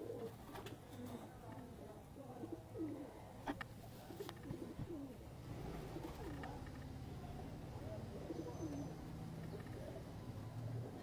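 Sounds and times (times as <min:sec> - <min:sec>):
pigeons cooing: 0:00.0 - 0:01.2, 0:04.0 - 0:06.6, 0:07.9 - 0:10.2.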